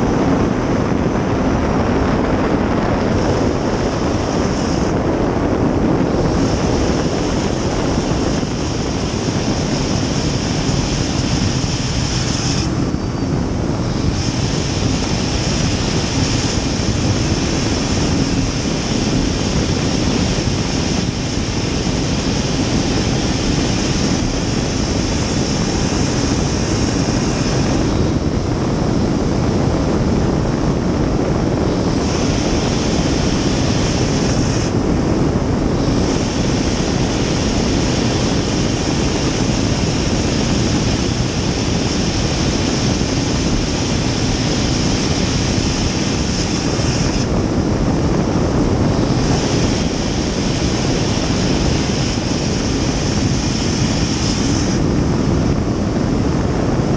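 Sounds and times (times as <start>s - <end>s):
jet boat turbine and water rush: 0.0s - 56.9s.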